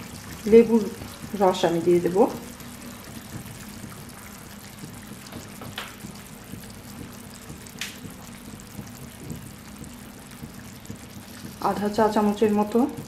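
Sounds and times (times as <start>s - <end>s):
curry simmering and bubbling: 0.0s - 13.0s
steady low hum: 0.0s - 13.0s
sharp pops from pan: 4.8s - 11.7s.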